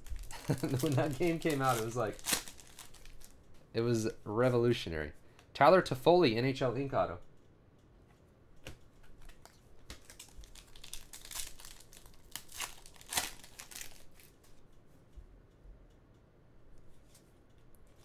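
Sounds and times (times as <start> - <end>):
cards scraping and rustling: 0.6 - 3.3.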